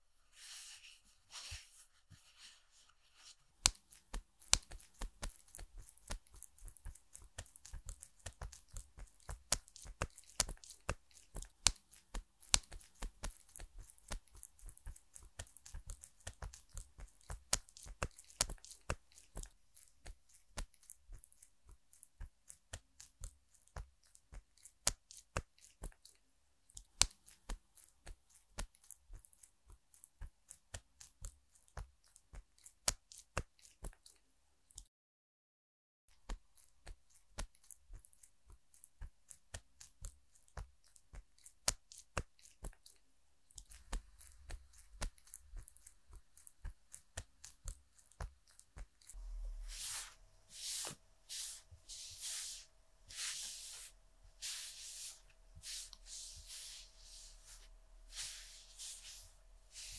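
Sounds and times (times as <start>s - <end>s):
cotton pads rubbing crackle: 49.0s - 59.9s.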